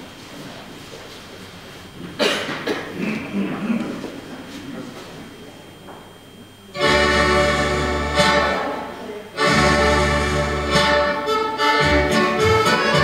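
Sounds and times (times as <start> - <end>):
country dance music: 6.8 - 8.8, 9.4 - 13.0.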